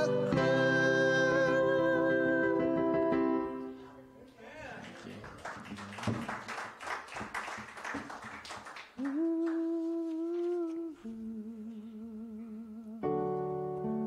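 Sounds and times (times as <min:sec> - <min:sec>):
keyboard chord: 0:00.0 - 0:03.9, 0:13.0 - 0:14.0
worship band music: 0:00.0 - 0:04.4, 0:08.9 - 0:14.0.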